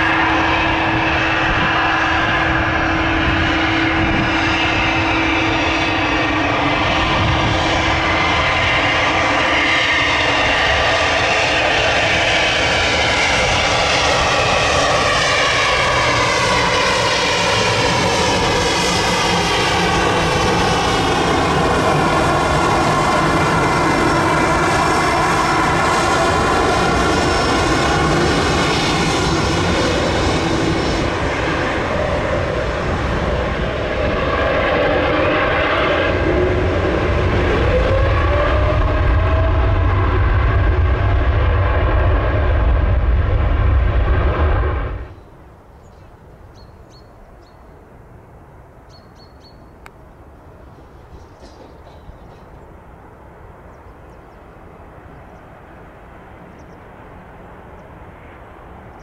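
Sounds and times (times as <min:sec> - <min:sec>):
jet engines whining: 0:00.0 - 0:45.7, 0:49.7 - 0:59.0
low rumble: 0:11.9 - 0:45.2.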